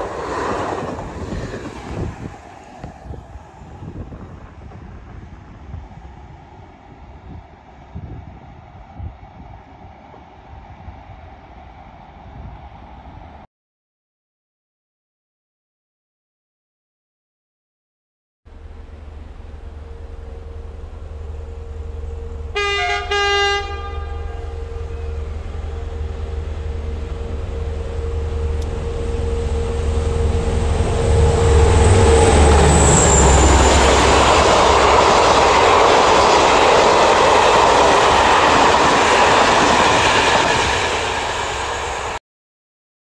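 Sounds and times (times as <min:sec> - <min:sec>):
train wheels on rails: 0:00.0 - 0:13.4, 0:18.6 - 0:42.2
diesel locomotive engine rumble: 0:00.0 - 0:13.5, 0:18.5 - 0:42.2
locomotive horn blasts: 0:19.8 - 0:35.0.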